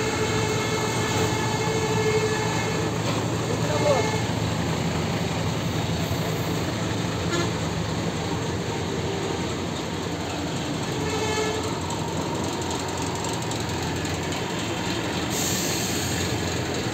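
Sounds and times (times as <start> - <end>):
bus engines idling: 0.0 - 16.9
short horn toot: 7.3 - 7.6, 11.0 - 11.7.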